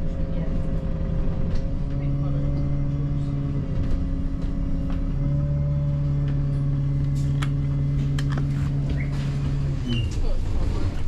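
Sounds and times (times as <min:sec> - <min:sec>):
bus engine humming: 0:00.0 - 0:11.0.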